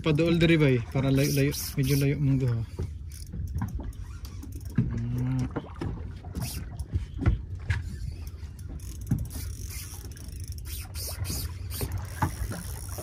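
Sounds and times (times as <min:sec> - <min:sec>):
fishing reel whirring: 0:01.1 - 0:05.3, 0:06.2 - 0:07.0, 0:07.8 - 0:13.0.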